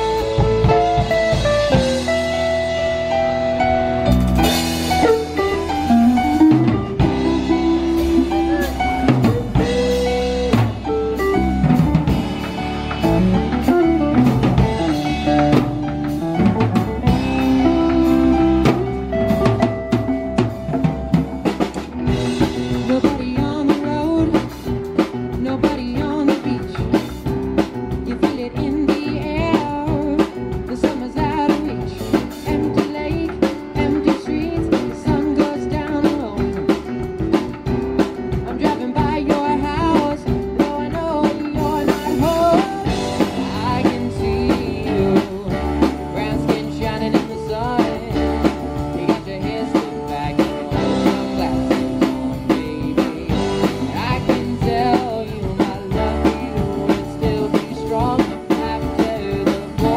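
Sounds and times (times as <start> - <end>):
drum kit steady beat: 0.0 - 59.9
live rock band playing: 0.0 - 59.9
person singing: 5.0 - 11.9, 28.0 - 36.9, 38.3 - 59.9.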